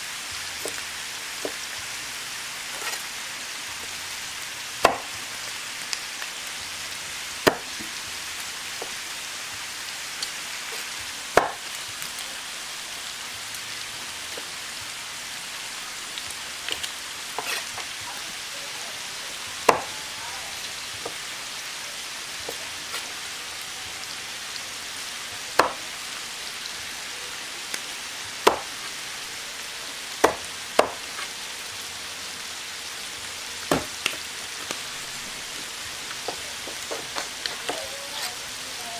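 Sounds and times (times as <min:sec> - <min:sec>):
pork sizzling on a griddle: 0:00.0 - 0:38.9
knife striking wooden chopping block: 0:04.8 - 0:05.1, 0:07.4 - 0:07.7, 0:11.4 - 0:11.6, 0:25.6 - 0:25.8, 0:28.4 - 0:28.7, 0:30.2 - 0:31.0, 0:33.7 - 0:33.9.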